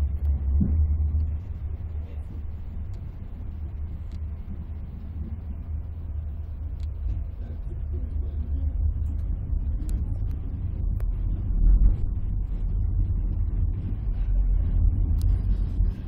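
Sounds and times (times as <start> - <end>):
train rumble inside coach: 0.0 - 16.0
faint ticks: 15.0 - 16.0.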